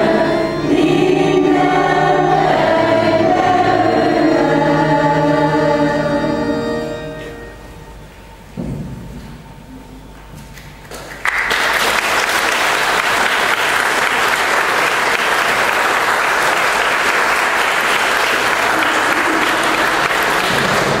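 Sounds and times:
audience applauding: 0:10.8 - 0:21.0.

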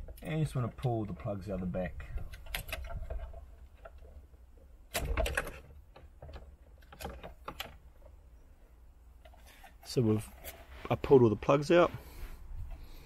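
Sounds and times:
plastic connectors clicking and rattling: 0:02.2 - 0:04.1.

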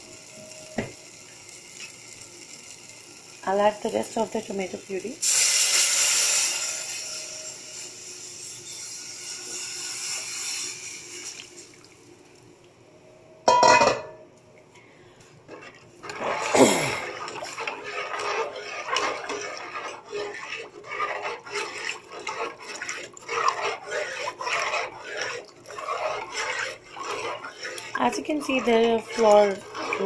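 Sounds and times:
puree hissing in hot pot: 0:00.0 - 0:11.7, 0:16.1 - 0:30.0
utensil scraping metal pot: 0:15.5 - 0:30.0.

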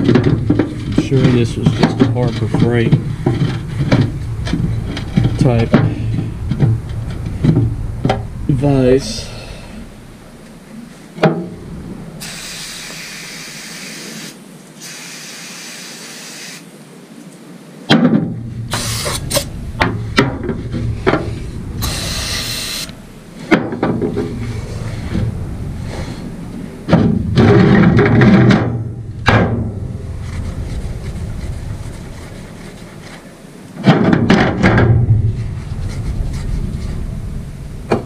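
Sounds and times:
aerosol spray hissing: 0:12.2 - 0:16.7, 0:21.8 - 0:22.9.

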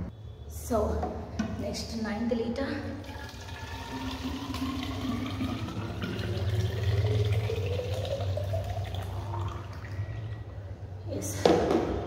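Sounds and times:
water pouring into glass bottle: 0:03.0 - 0:10.4.

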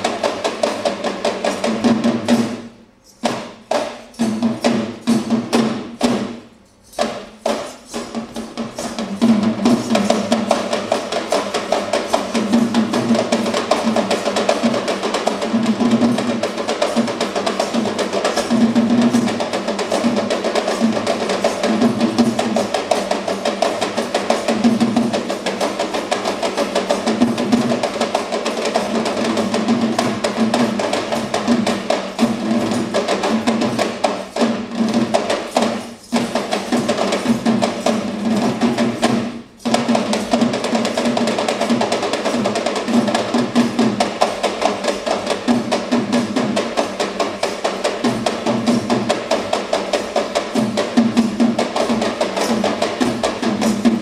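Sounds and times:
hand drums playing: 0:00.0 - 0:54.0.

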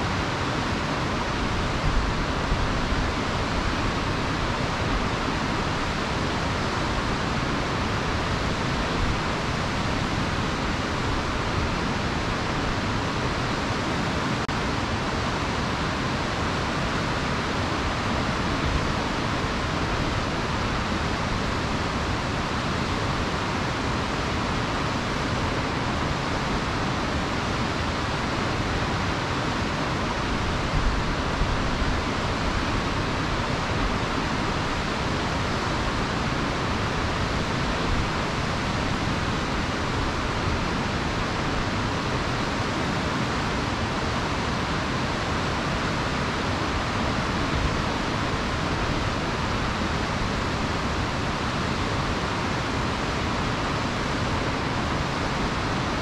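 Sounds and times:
river rushing: 0:00.0 - 0:56.0.

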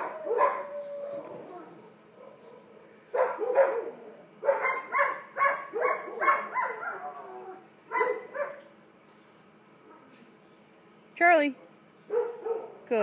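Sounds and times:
dog barking: 0:00.0 - 0:00.7, 0:02.2 - 0:07.1, 0:07.9 - 0:08.6, 0:12.1 - 0:12.8.

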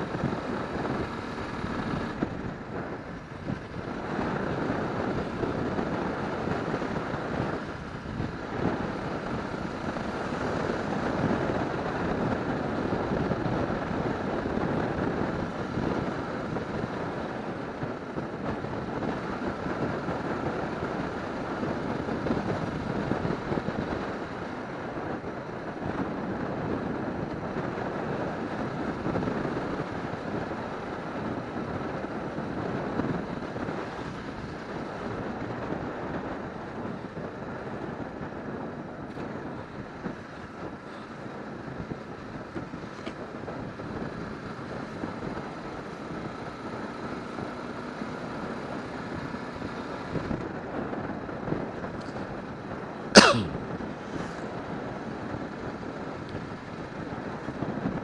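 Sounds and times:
motorcycle engine running: 0:00.0 - 0:53.2
road noise: 0:00.0 - 0:58.0
wind noise on microphone: 0:00.0 - 0:58.0.

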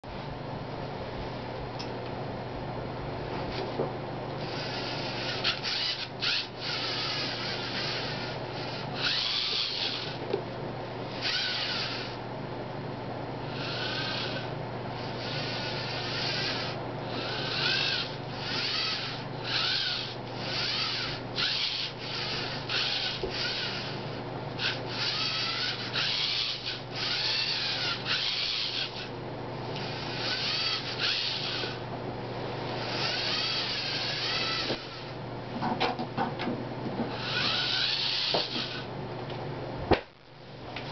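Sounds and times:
small servo motors whirring: 0:04.4 - 0:10.3, 0:11.1 - 0:12.2, 0:13.4 - 0:29.1, 0:29.8 - 0:31.8, 0:32.7 - 0:35.2, 0:37.1 - 0:38.9.

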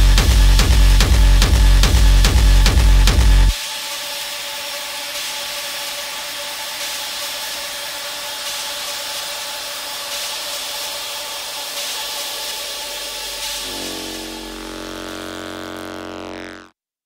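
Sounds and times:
hissing noise wash: 0:03.6 - 0:16.6
held synth tones: 0:13.6 - 0:16.7.

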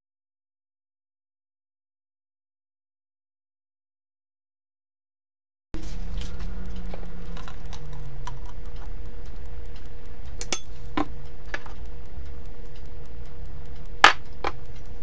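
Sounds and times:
steady low hum: 0:05.8 - 0:15.0.

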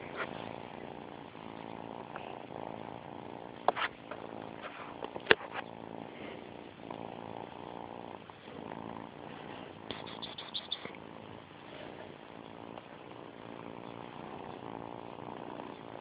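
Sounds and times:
kitten purring: 0:00.0 - 0:16.0.

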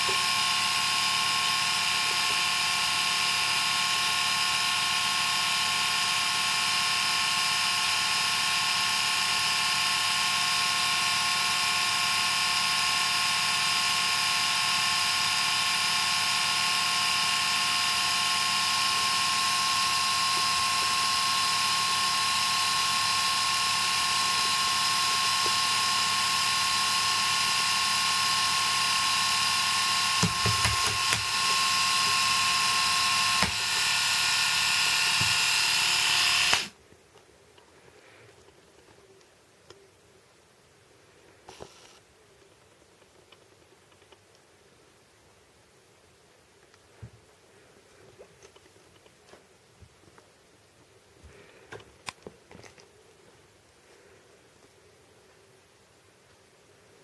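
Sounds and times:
electric shaver motor whine: 0:00.0 - 0:36.8, 0:41.5 - 0:42.0.

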